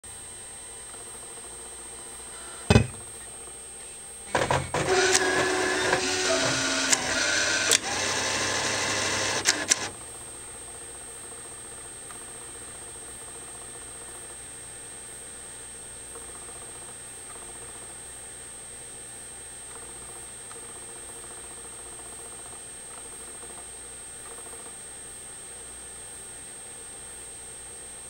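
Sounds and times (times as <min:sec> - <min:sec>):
bill validator motor whirring: 0:00.4 - 0:10.0.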